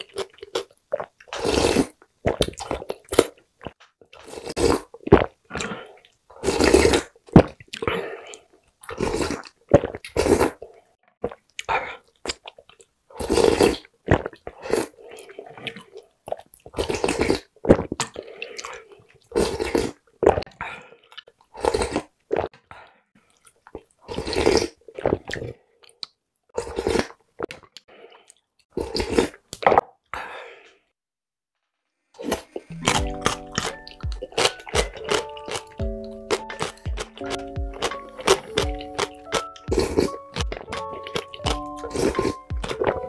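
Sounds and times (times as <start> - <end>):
person slurping broth: 0.0 - 3.4, 4.2 - 12.4, 13.2 - 16.0, 16.7 - 20.4, 21.5 - 22.5, 24.1 - 25.6, 26.6 - 29.4, 32.2 - 43.0.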